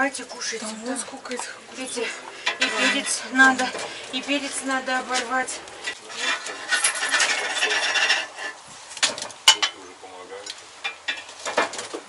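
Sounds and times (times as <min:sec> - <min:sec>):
dishes scraping on wooden table: 0:01.3 - 0:09.7.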